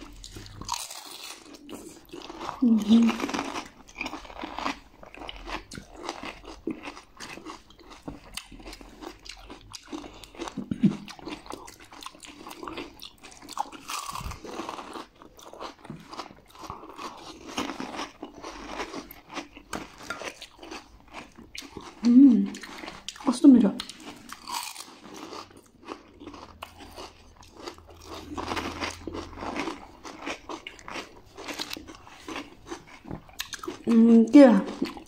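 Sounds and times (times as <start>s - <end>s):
chewing: 0.0s - 35.0s
crunching crisp shells: 0.1s - 10.6s, 23.8s - 33.9s.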